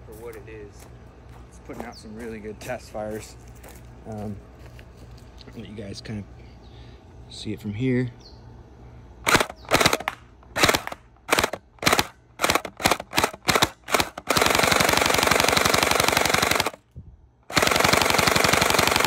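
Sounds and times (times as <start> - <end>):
gel blaster rapid fire bursts: 9.2 - 16.8, 17.5 - 19.0
gel blaster single shots: 9.2 - 16.8.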